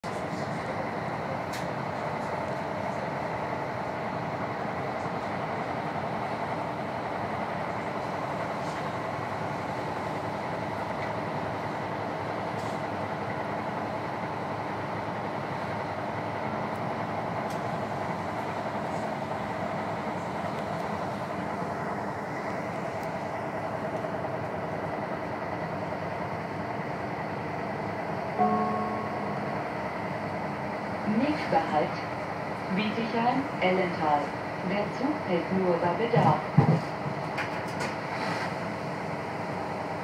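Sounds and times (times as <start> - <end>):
wheels rumbling on rail: 0.0 - 40.0
constant hum: 15.2 - 38.0.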